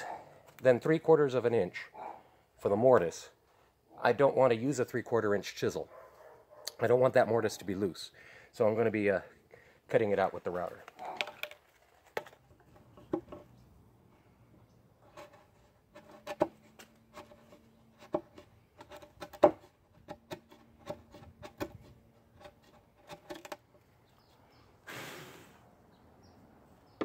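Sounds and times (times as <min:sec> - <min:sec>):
chisel chopping wood: 0:18.0 - 0:21.8.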